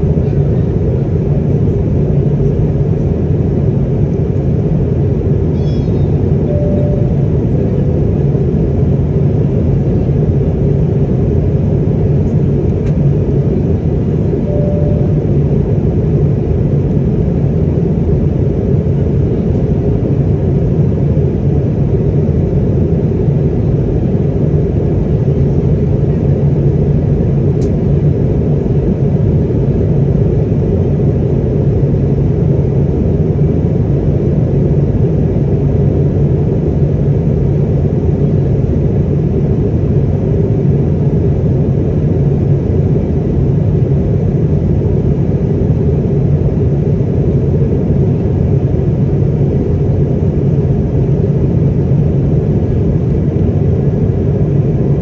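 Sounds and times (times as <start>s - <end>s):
airliner cabin rumble: 0.0s - 55.0s.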